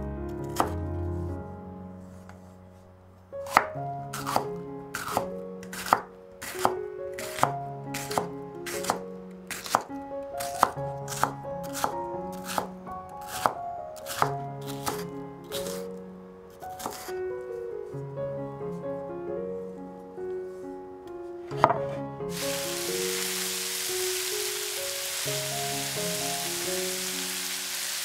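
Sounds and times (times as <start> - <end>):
background music with held notes: 0.0 - 15.5, 16.8 - 28.0
knife chopping on cutting board: 3.5 - 9.9, 13.3 - 15.0.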